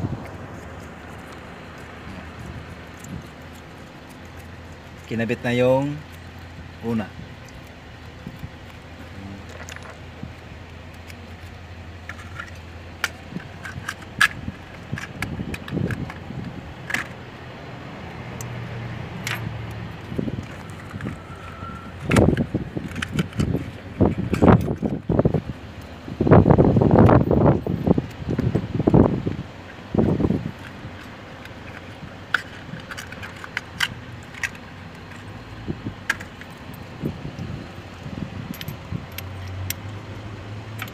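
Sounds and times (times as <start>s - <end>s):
low steady hum: 0.0s - 40.9s
socket clinking against engine: 0.2s - 17.2s, 18.3s - 25.9s, 29.6s - 40.9s
metallic clicks of hand tools: 19.2s - 19.8s, 38.5s - 40.0s.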